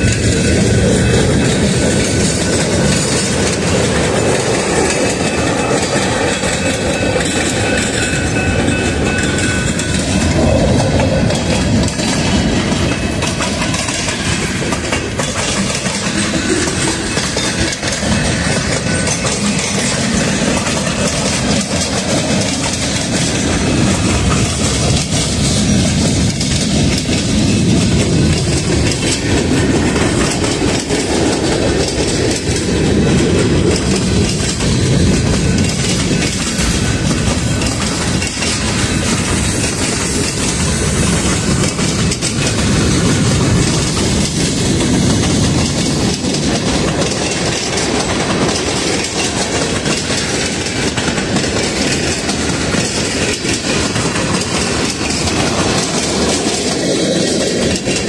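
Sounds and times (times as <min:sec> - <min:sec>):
train wheels rumbling on rail: 0:00.0 - 0:58.0
wheels clicking over rail joints: 0:00.0 - 0:58.0.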